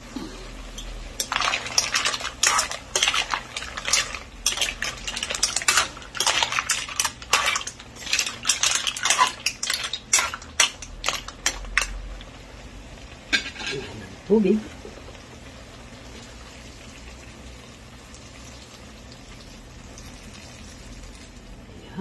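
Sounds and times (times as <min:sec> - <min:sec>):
metal spoon scraping wok: 0:00.8 - 0:12.0
mussel shells clacking: 0:01.2 - 0:12.0.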